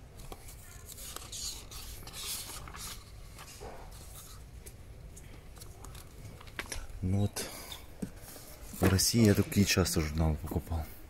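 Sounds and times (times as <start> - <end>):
magazine pages rustling: 0.1 - 6.9, 8.0 - 9.8.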